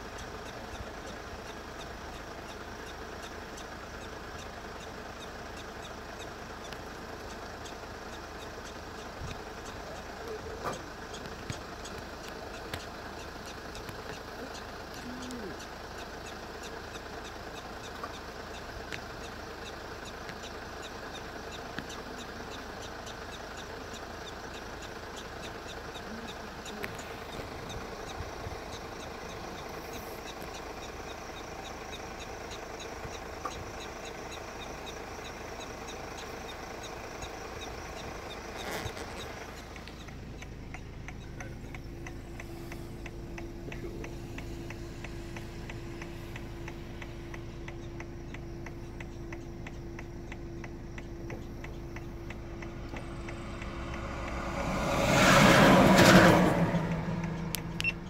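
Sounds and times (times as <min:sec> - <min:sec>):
regular ticking: 0:00.0 - 0:58.0
vehicle engine idling: 0:00.0 - 0:58.0
steady low hum: 0:24.3 - 0:58.0.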